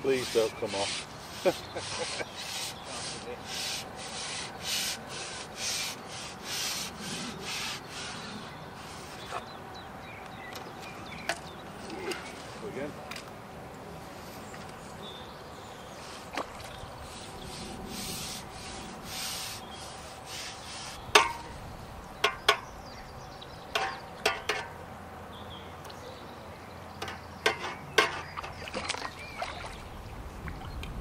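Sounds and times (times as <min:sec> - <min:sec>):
rubbing and rustling: 0:00.0 - 0:09.5, 0:16.0 - 0:21.3.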